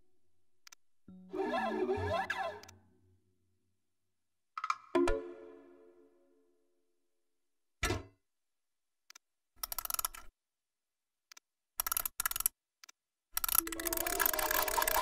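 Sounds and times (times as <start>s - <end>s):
rapid crank clicking: 9.6s - 10.3s, 11.8s - 12.6s, 13.4s - 15.0s.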